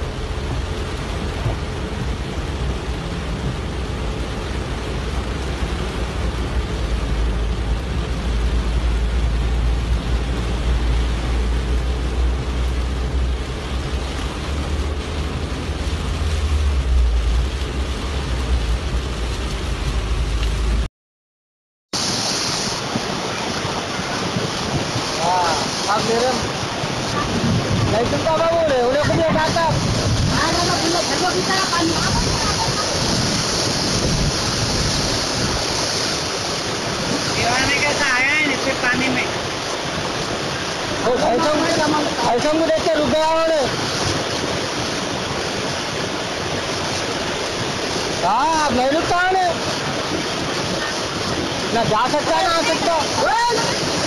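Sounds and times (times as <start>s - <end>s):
heavy rain on car windshield: 0.0s - 20.8s, 22.0s - 54.0s
floodwater rushing: 0.0s - 20.9s, 22.0s - 54.0s
low rumble: 0.0s - 20.9s.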